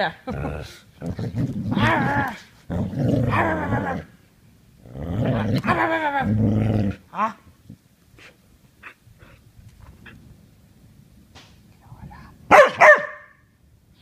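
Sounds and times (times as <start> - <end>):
dog growling: 0.2 - 4.1, 4.8 - 7.3.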